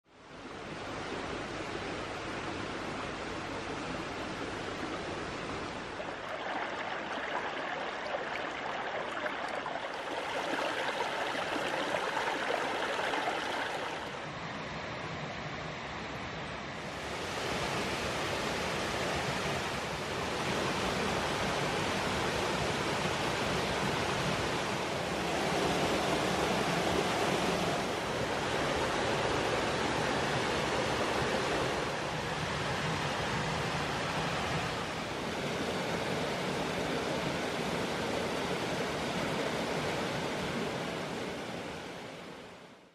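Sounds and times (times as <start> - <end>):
creek water running over rocks: 0.6 - 14.3
waterfall pouring: 6.0 - 14.2.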